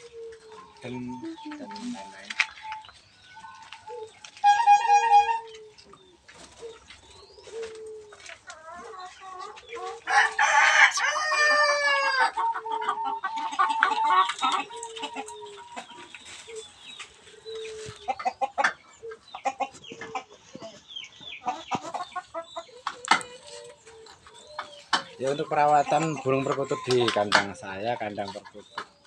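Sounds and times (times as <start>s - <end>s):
birds chirping and cooing: 0.0s - 29.0s
rooster crowing: 10.1s - 12.4s.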